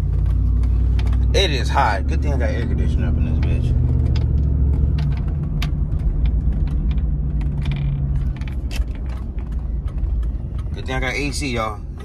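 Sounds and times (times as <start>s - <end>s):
engine and road rumble: 0.0s - 12.0s
light clicks and rattles: 3.2s - 12.0s.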